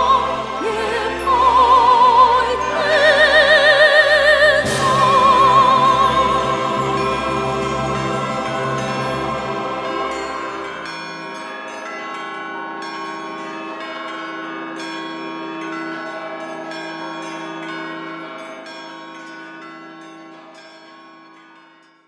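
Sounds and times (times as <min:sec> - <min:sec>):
held ringing chord: 0:00.0 - 0:13.9
bells chiming: 0:00.0 - 0:22.0.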